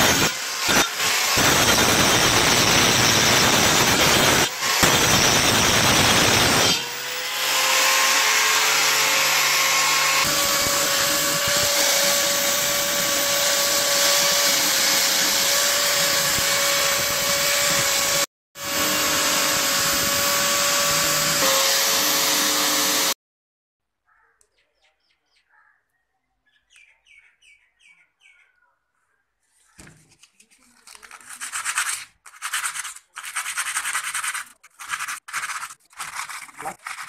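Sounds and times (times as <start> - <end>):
wire brush scraping metal: 0.0 - 6.8, 31.0 - 37.0
angle grinder grinding metal: 0.0 - 23.2.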